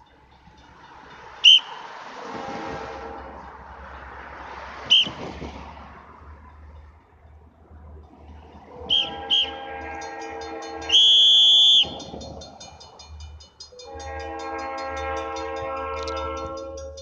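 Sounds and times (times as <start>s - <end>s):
crossing bell dinging: 0.0s - 5.2s, 6.1s - 17.0s
high whistle-like notes: 1.4s - 1.9s, 4.9s - 5.2s, 8.8s - 12.2s
locomotive air horn: 1.4s - 3.9s, 4.7s - 5.3s, 8.7s - 12.2s, 13.7s - 17.0s.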